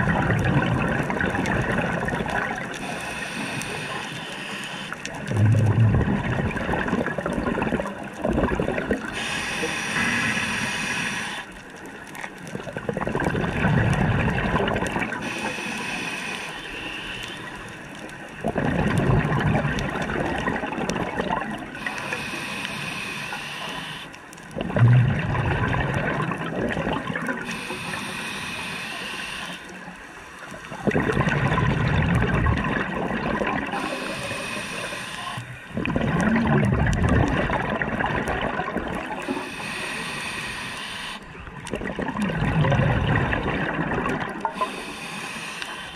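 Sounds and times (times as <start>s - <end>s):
gurgling exhaust bubbles: 0.0s - 2.8s, 5.1s - 9.2s, 12.4s - 15.2s, 18.4s - 21.8s, 24.5s - 27.5s, 30.8s - 34.0s, 35.7s - 39.2s, 41.6s - 44.6s
regulator inhale hiss: 2.7s - 5.0s, 9.1s - 11.6s, 15.2s - 17.8s, 21.8s - 24.3s, 27.4s - 30.8s, 33.7s - 35.7s, 39.2s - 41.4s, 44.5s - 45.9s.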